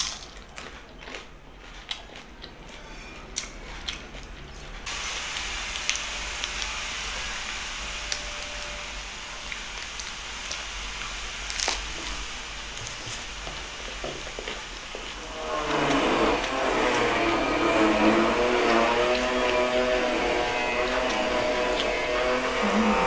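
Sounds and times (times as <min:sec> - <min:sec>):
sharp crunch of biting: 0:00.0 - 0:02.6
close-up chewing: 0:00.0 - 0:06.8, 0:09.5 - 0:17.2
humming tone: 0:04.9 - 0:10.7, 0:15.2 - 0:23.0.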